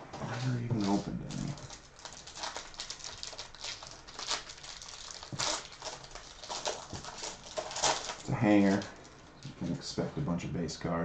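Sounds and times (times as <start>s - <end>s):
plastic wrapping crinkling and tearing: 0.3s - 9.8s.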